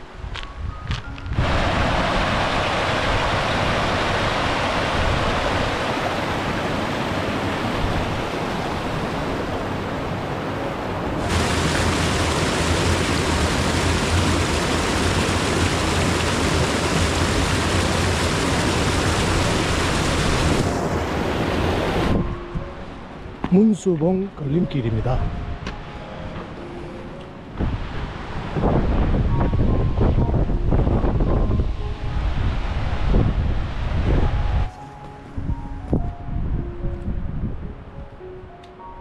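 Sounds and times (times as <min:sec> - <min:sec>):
mountain stream rushing: 0:01.4 - 0:22.2.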